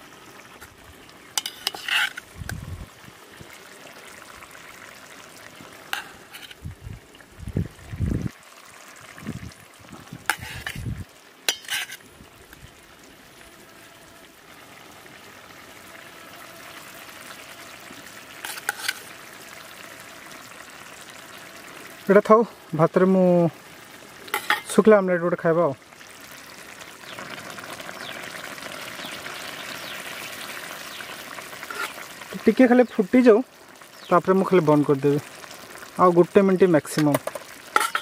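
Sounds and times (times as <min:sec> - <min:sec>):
curry frying hiss: 0:00.0 - 0:38.0
knife clinking on steel plate: 0:37.8 - 0:38.0.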